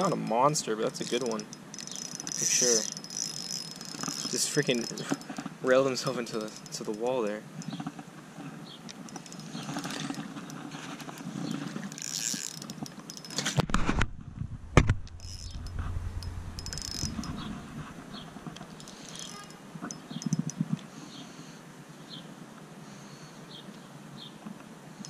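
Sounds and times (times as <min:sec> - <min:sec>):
camera handling rubbing: 0:00.9 - 0:05.6, 0:14.8 - 0:20.6
low rumble: 0:13.9 - 0:18.6.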